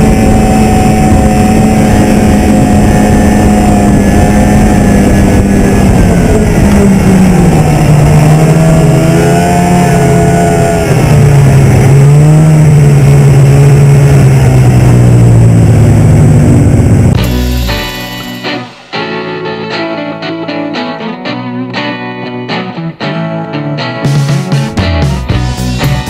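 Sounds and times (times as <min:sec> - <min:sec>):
snowmobile engine running: 0:00.0 - 0:18.9.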